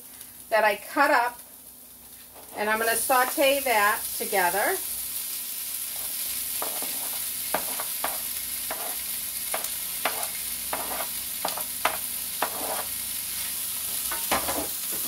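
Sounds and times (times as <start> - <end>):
potatoes sizzling in oil: 0.0 - 15.0
wooden spatula scraping a pan: 5.9 - 13.0.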